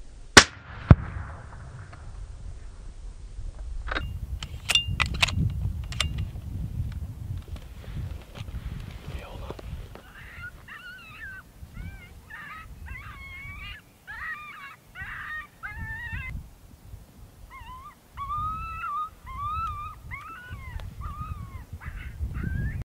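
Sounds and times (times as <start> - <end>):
low rumble: 0.0 - 4.4
dog whining and whimpering: 10.2 - 16.3, 17.5 - 21.6.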